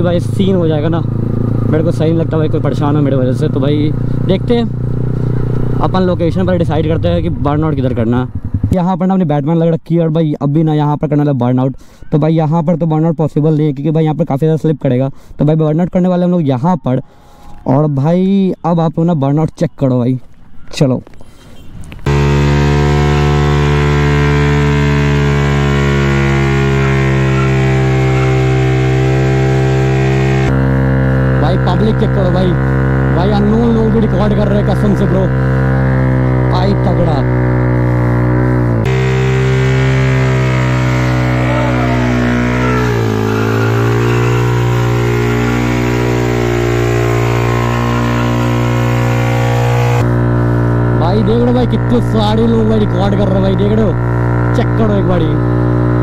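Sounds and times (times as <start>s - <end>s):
motorcycle engine at high revs: 0.0s - 8.8s, 22.0s - 56.0s.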